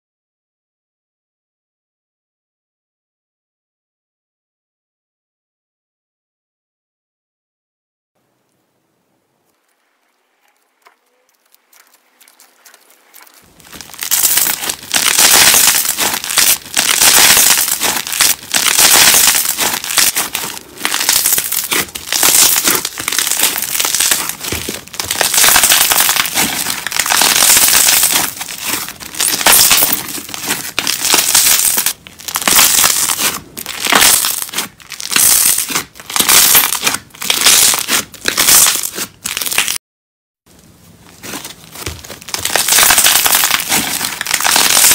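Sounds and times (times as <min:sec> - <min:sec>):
slime squished by hand: 0:11.4 - 0:39.8.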